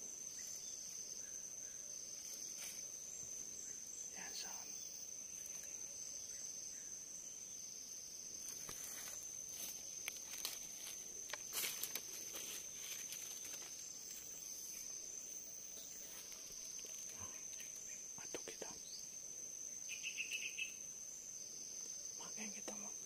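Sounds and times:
insects droning: 0:00.0 - 0:23.0
rustles in dry leaves: 0:02.1 - 0:03.0, 0:08.4 - 0:15.0.

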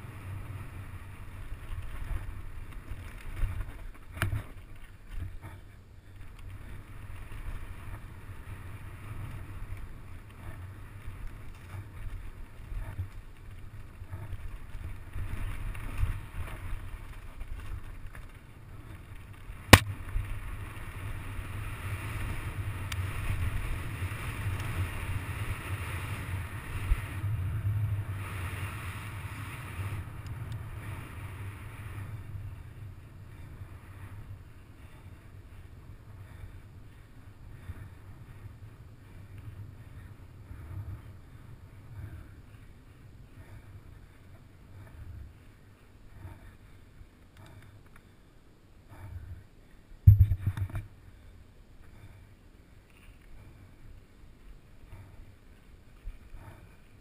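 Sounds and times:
wind rumble on microphone: 0:00.0 - 0:47.8, 0:48.8 - 0:51.2
bike tyre noise: 0:00.0 - 0:48.2
bike knocks and rattles: 0:50.1 - 0:50.9.

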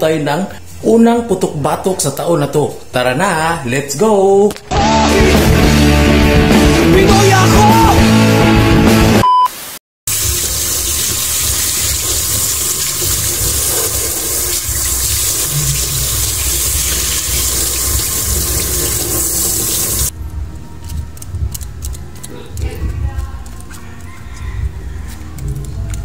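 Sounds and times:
short electronic beep: 0:09.2 - 0:09.6
kitchen tap running and splashing: 0:10.1 - 0:20.1.

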